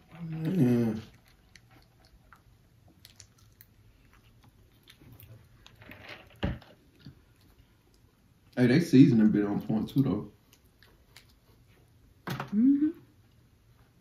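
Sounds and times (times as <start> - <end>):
people chewing: 0.0 - 5.8, 9.2 - 12.0.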